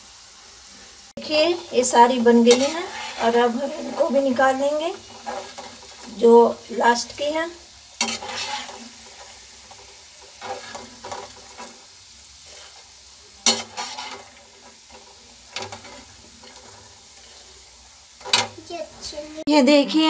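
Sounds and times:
hot oil sizzling: 0:00.0 - 0:20.0
metal spoon scraping and clinking: 0:02.4 - 0:04.0, 0:08.0 - 0:08.9.

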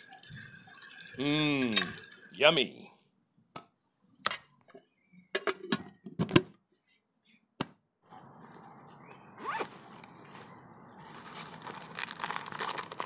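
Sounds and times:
zipper closing: 0:09.4 - 0:10.1
nylon backpack rustling: 0:09.4 - 0:13.0.

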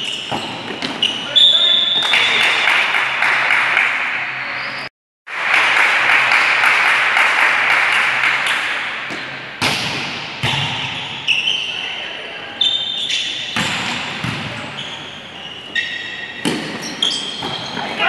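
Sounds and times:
echoing gym hall noise: 0:00.0 - 0:18.0
volleyball hits and thuds: 0:09.1 - 0:11.0, 0:13.6 - 0:14.7, 0:16.4 - 0:17.9.

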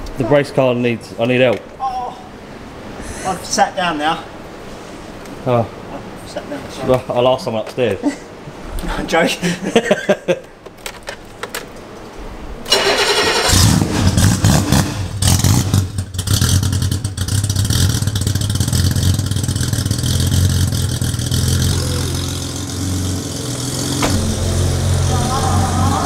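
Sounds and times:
car starter cranking: 0:12.7 - 0:14.6, 0:23.5 - 0:26.0
car engine revving and idling: 0:13.1 - 0:26.0.

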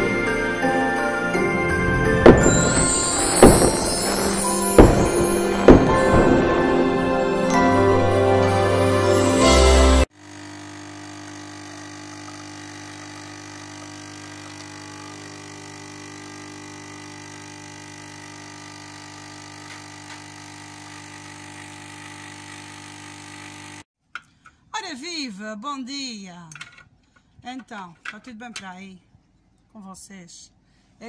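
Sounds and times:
intro music: 0:00.0 - 0:10.1
espresso machine pump humming: 0:10.2 - 0:23.8.

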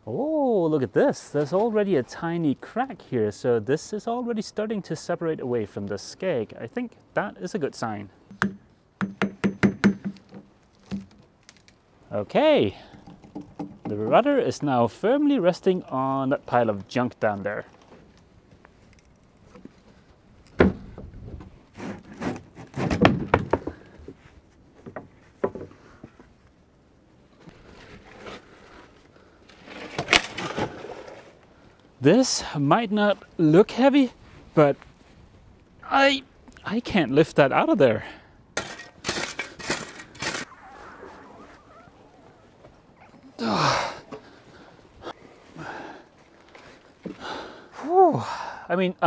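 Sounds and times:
wooden planks knocking: 0:08.4 - 0:11.2, 0:22.8 - 0:23.9
planks scraping: 0:20.5 - 0:26.3, 0:38.6 - 0:43.2
person grunting with effort: 0:43.2 - 0:44.2, 0:47.8 - 0:48.6.

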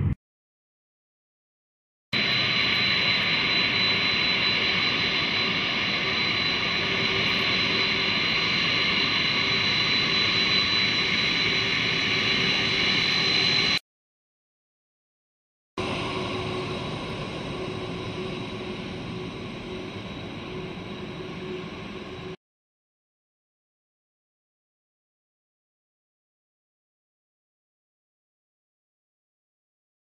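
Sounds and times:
jet engines whining: 0:02.2 - 0:13.8, 0:15.8 - 0:22.4.

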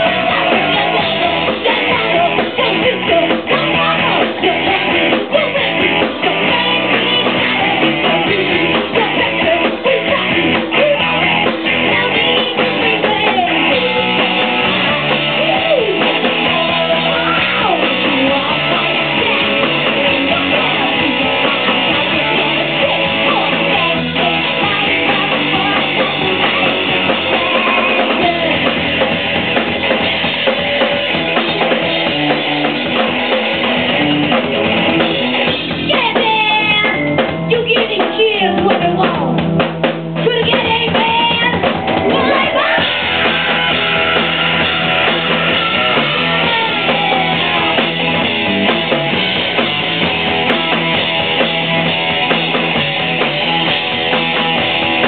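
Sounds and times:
rock band playing live: 0:00.0 - 0:55.0
rapid drum hits: 0:37.1 - 0:55.0.

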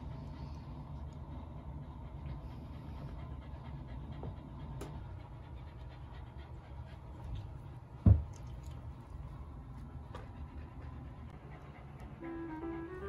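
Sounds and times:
dog panting: 0:00.0 - 0:08.0, 0:08.7 - 0:13.0.

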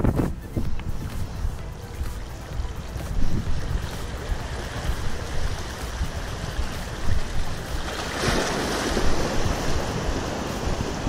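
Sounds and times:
wind buffeting microphone: 0:00.0 - 0:11.0
small waves washing on rocks: 0:03.7 - 0:11.0.

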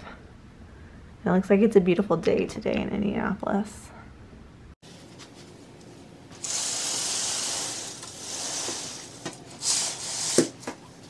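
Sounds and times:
curtain swishing along rail: 0:06.3 - 0:10.7.

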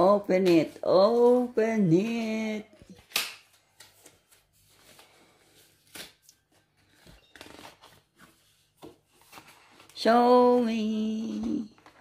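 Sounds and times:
cardboard and paper rustling: 0:00.0 - 0:12.0
paper crackle: 0:02.9 - 0:10.6.

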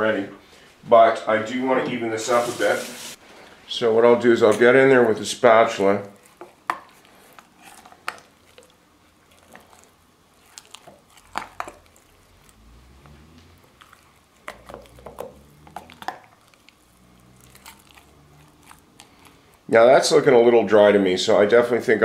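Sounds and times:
spatula squishing thick paste: 0:04.4 - 0:20.4.

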